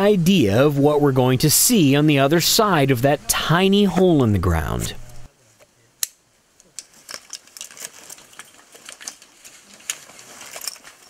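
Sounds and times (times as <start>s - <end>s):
harness clips and buckles clinking: 6.8s - 11.0s.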